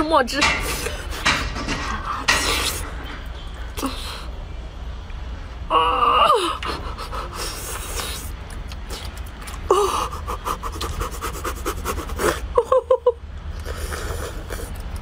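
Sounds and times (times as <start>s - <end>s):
wet sucking and chewing: 2.0s - 3.0s, 6.6s - 12.5s, 13.5s - 15.0s
woman panting and gasping: 6.4s - 8.0s, 9.7s - 10.7s.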